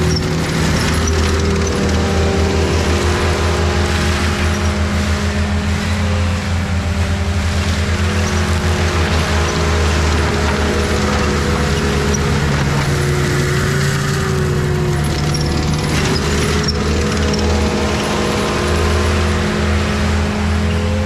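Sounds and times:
diesel engine at high revs: 0.0s - 21.0s
mulcher grinding brush: 0.0s - 21.0s.

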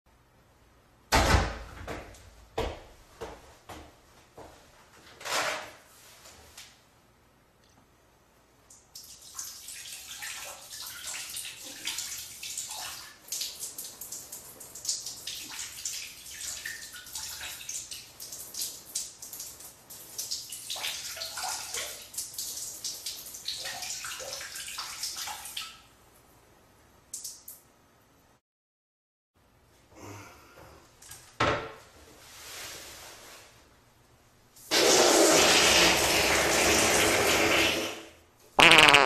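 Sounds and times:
fart noise sputtering: 38.6s - 39.0s.

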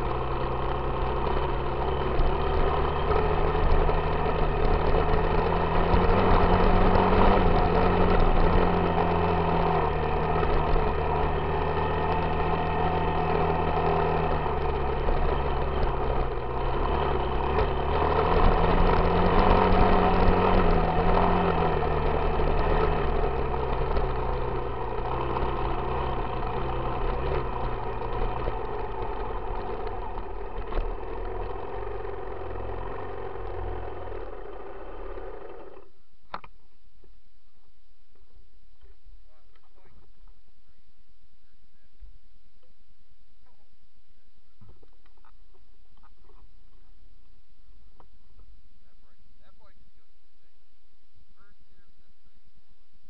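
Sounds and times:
dirt bike engine revving: 0.0s - 35.9s.

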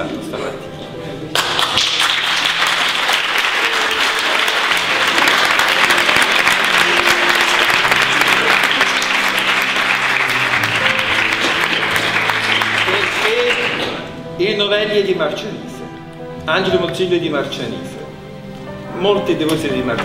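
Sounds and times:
soft music: 0.0s - 20.0s
people clapping: 1.3s - 14.1s.

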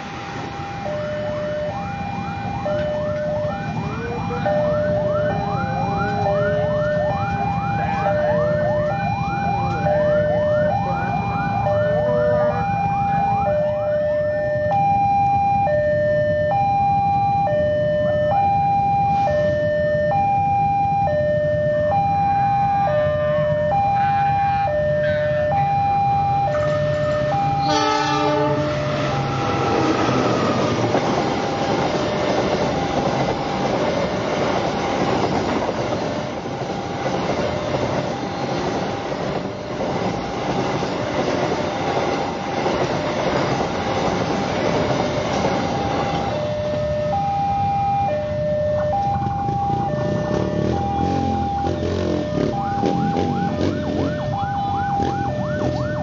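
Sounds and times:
level crossing alarm tones: 0.0s - 56.0s
locomotive horn blast: 22.9s - 25.7s, 26.5s - 30.6s.

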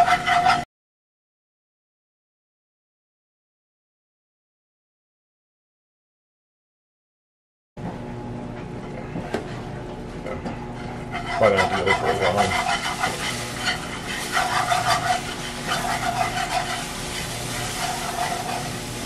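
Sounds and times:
wire whisk scraping a skillet: 0.0s - 0.7s, 10.7s - 19.0s
milk sizzling in a pan: 11.1s - 19.0s.

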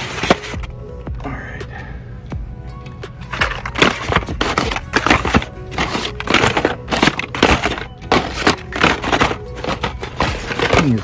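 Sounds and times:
plastic blister packs crinkling: 0.0s - 0.7s, 3.3s - 11.0s.

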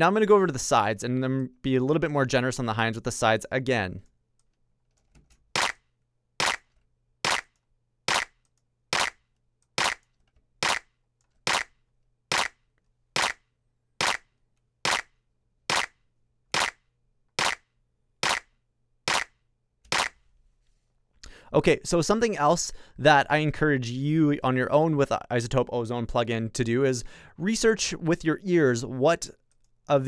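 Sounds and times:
electronic clap sample: 5.6s - 5.8s, 6.4s - 6.6s, 7.3s - 7.5s, 8.1s - 8.4s, 9.0s - 9.2s, 9.8s - 10.0s, 10.6s - 10.9s, 11.5s - 11.7s, 12.3s - 12.6s, 13.2s - 13.4s, 14.0s - 14.2s, 14.9s - 15.1s, 15.7s - 16.0s, 16.6s - 16.8s, 17.4s - 17.6s, 18.2s - 18.5s, 19.1s - 19.3s, 19.9s - 20.2s.

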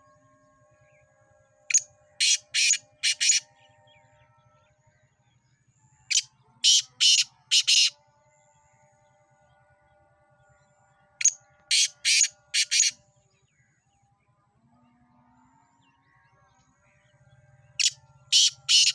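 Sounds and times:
francolin harsh rasping call: 1.7s - 3.4s, 6.1s - 8.0s, 11.2s - 13.0s, 17.8s - 18.9s.

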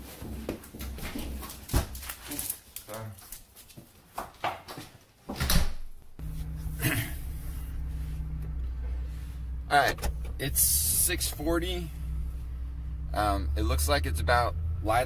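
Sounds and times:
car cabin hum: 6.2s - 15.0s.

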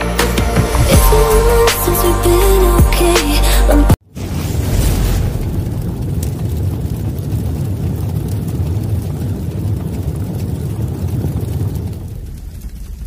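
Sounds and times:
sharp hit: 0.3s - 3.3s
deep steady rumble: 0.6s - 3.9s.

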